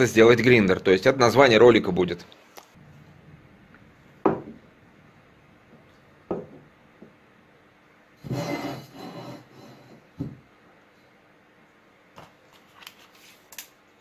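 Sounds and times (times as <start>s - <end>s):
parts knocking on tiled floor: 4.2s - 4.7s, 6.3s - 7.2s, 10.2s - 10.4s
steel pipe rolling on floor: 8.2s - 10.1s.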